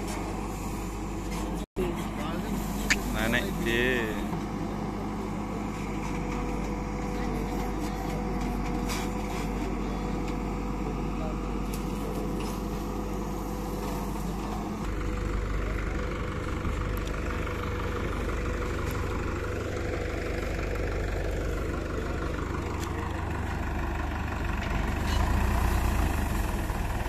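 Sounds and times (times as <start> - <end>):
diesel engines running: 0.0 - 27.0.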